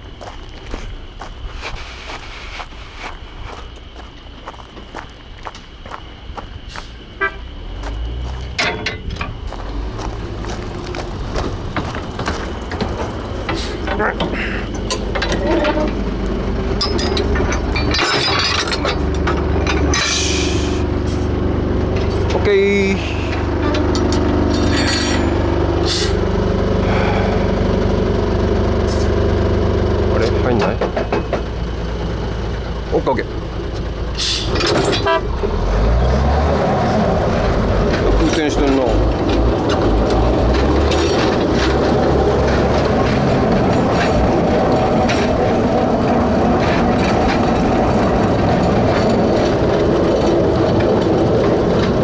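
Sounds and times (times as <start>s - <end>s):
footsteps: 0.0s - 16.0s
diesel locomotive engine running: 0.0s - 52.0s
locomotive horn toot: 7.2s - 7.6s, 34.2s - 35.5s.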